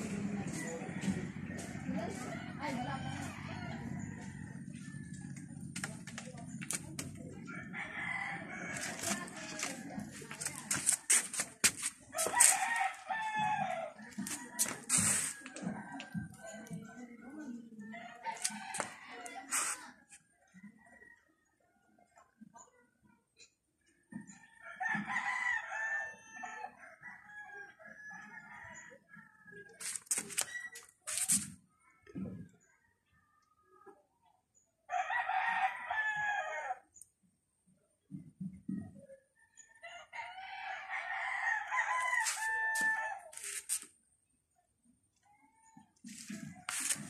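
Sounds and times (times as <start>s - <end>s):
rooster crowing: 34.9s - 36.8s, 39.9s - 43.7s.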